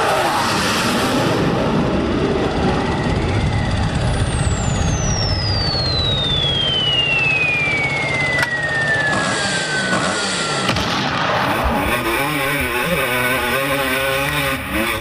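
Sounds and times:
engine running steadily: 0.0 - 15.0
descending whistle: 1.9 - 13.2.

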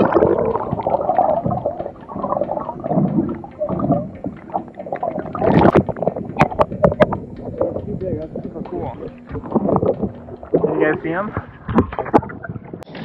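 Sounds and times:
sharp water splashes: 0.0 - 8.2
muffled underwater gurgling: 0.0 - 13.0.

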